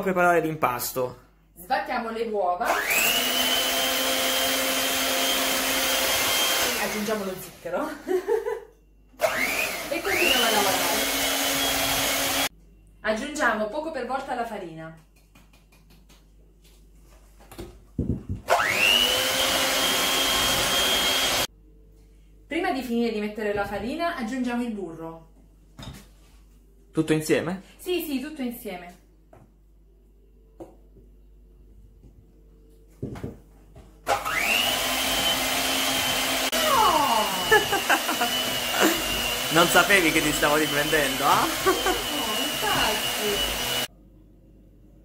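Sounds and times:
electric hand mixer whining: 2.7 - 7.4, 9.2 - 12.5, 18.5 - 21.5, 34.0 - 43.9.

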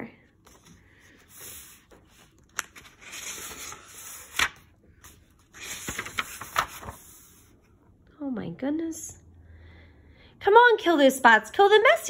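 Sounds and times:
book pages rustling: 0.3 - 7.8
page flapping: 1.4 - 7.3.

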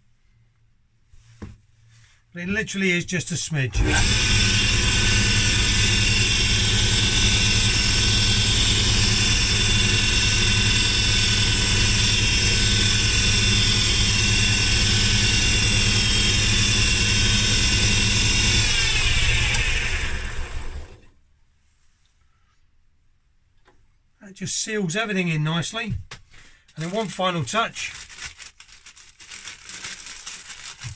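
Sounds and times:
wood lathe motor running: 3.7 - 21.1.

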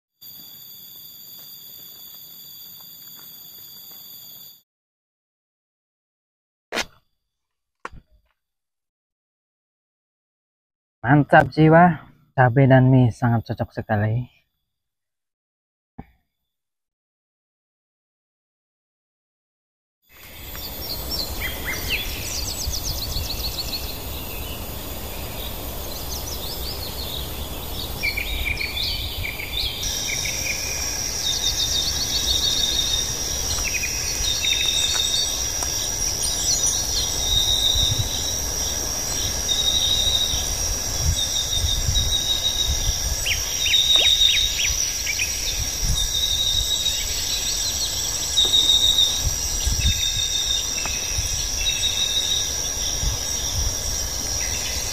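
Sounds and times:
high insect drone: 0.2 - 4.6, 20.1 - 54.9
insects chirping: 0.2 - 4.6, 11.0 - 14.6, 20.1 - 54.9
birds calling: 20.2 - 54.9.

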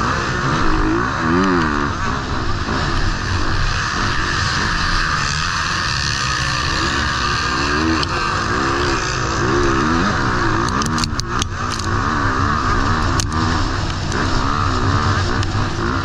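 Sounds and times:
motocross bike engine revving: 0.0 - 16.0
sharp clicks: 10.6 - 12.0.

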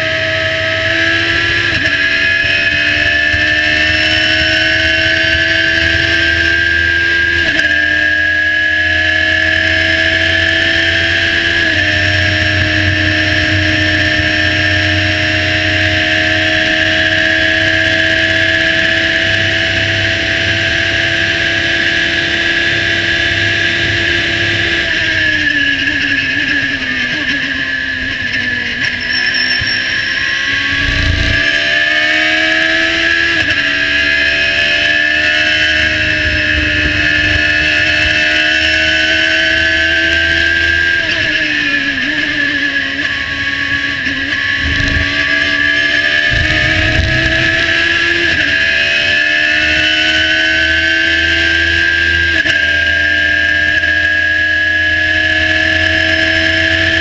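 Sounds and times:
race car engine revving: 0.0 - 57.0
wind and road rush: 0.0 - 57.0.

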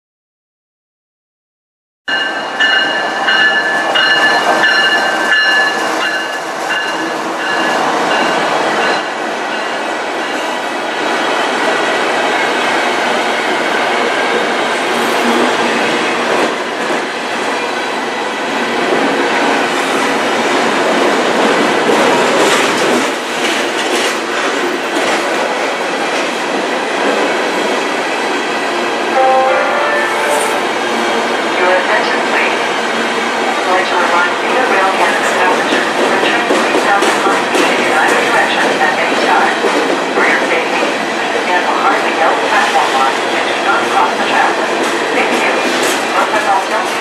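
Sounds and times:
train wheels rumbling on rails: 2.5 - 29.1, 30.6 - 47.0.

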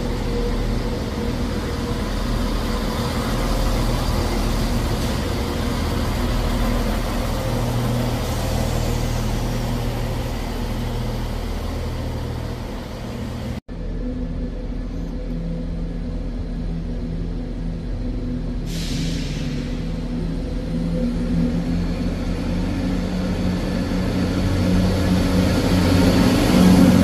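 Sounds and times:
diesel train engine hum: 0.0 - 27.0
train rumble: 0.0 - 27.0.

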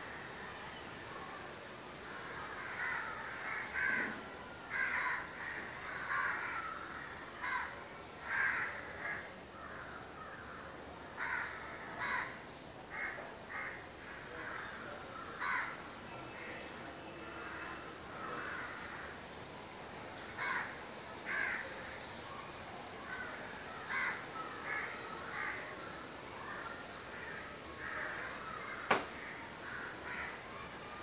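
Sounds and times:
crows cawing: 2.2 - 10.6, 11.2 - 15.8, 17.4 - 19.1, 20.2 - 21.7, 23.1 - 25.7, 26.4 - 30.4.

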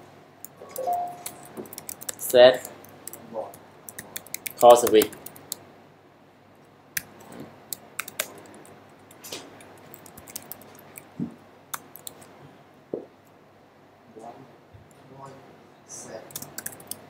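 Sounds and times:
typing on keyboard: 0.8 - 3.2, 3.9 - 5.6, 7.7 - 11.1, 11.7 - 12.2, 16.3 - 17.0.

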